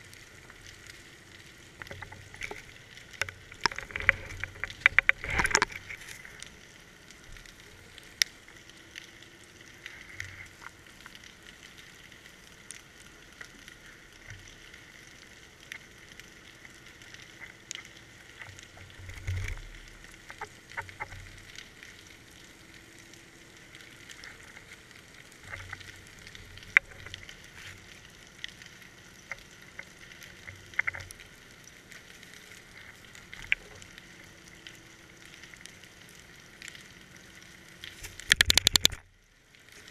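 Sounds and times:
sharp underwater clicks: 0.6 - 6.5, 25.4 - 27.4, 37.7 - 39.2.

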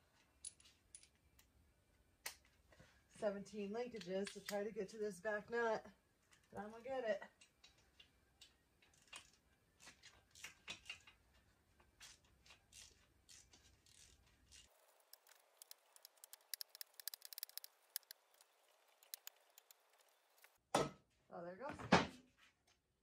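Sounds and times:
ratchet wrench clicking: 12.7 - 20.5
light metal clicks and taps: 14.8 - 20.5.

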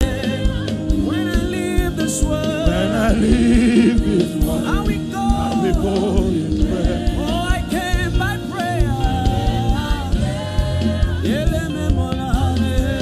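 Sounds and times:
congregation singing: 0.0 - 13.0
drum beat: 0.0 - 13.0
low bass: 0.0 - 13.0.

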